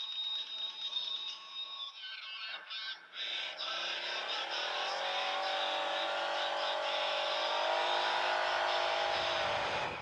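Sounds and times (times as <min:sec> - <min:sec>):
engine accelerating hard: 0:04.0 - 0:10.0.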